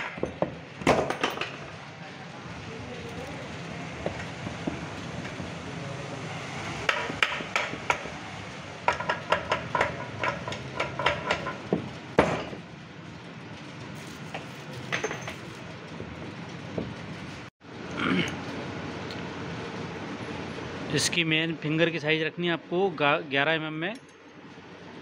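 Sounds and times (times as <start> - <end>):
metal tools clinking: 14.0 - 15.7.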